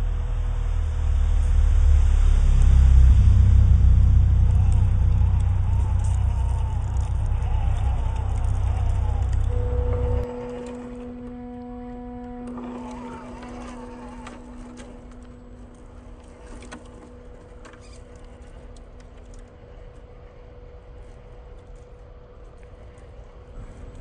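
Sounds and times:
light crackles: 0.0s - 24.0s
small electric motor humming: 4.6s - 15.3s.

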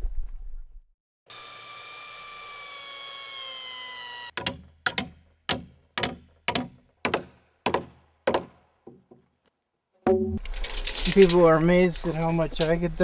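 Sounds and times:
hand tool striking wood: 4.4s - 9.3s.

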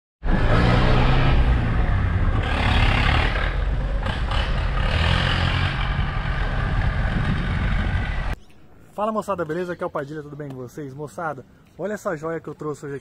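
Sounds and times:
diesel engine rumbling: 0.2s - 8.4s.

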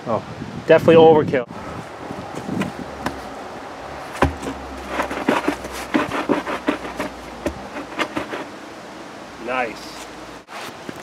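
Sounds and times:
short knocks and scuffs: 2.3s - 3.3s, 4.1s - 8.5s
cardboard tube thumping in dirt: 2.4s - 3.3s, 4.1s - 8.5s.

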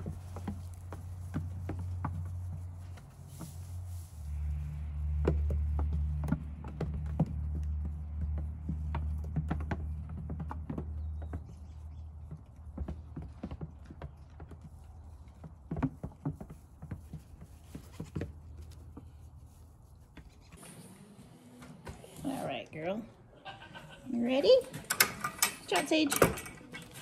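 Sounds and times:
hooves clattering on plastic: 5.0s - 19.2s.

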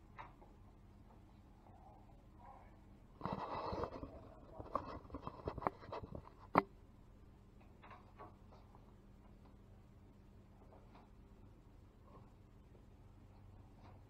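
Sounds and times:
camera handling rubbing: 3.2s - 6.6s.

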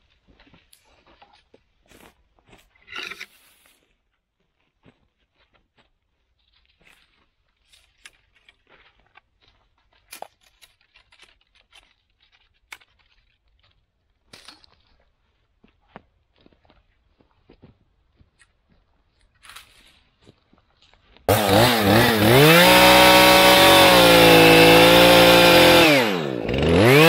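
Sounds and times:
footsteps crunching on pine straw: 4.8s - 13.8s.

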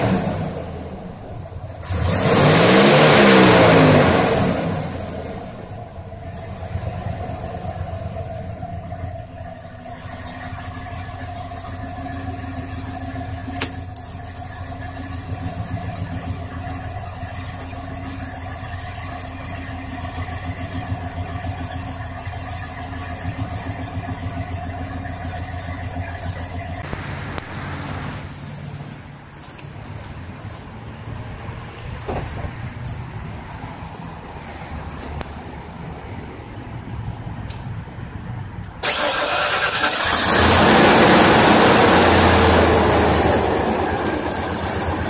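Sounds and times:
truck engine idling: 0.0s - 45.0s.

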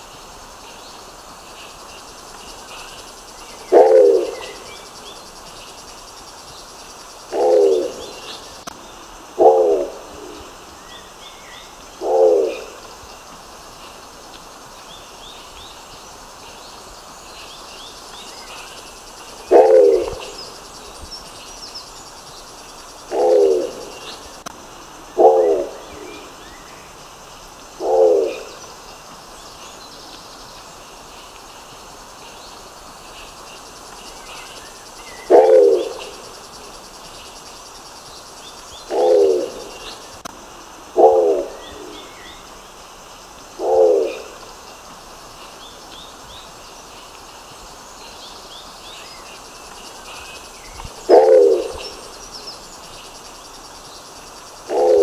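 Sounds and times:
pigeon low calls: 19.5s - 20.4s, 51.1s - 51.9s.

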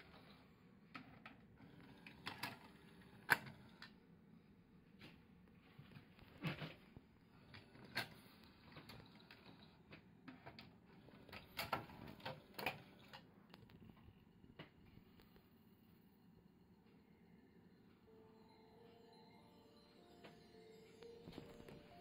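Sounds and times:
cd changer mechanism clicks and clacks: 7.5s - 13.7s.

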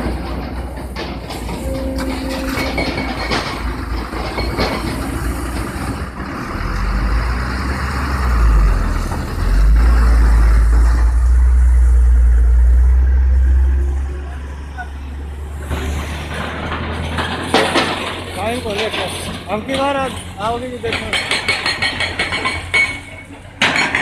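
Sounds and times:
excavator diesel engine: 0.0s - 24.0s
deep rumble: 1.0s - 17.5s.

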